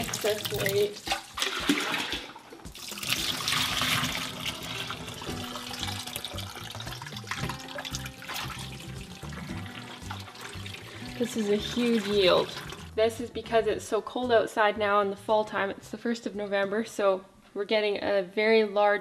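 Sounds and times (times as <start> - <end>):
liquid pouring and splashing: 0.0 - 13.0
liquid trickling: 0.0 - 13.0.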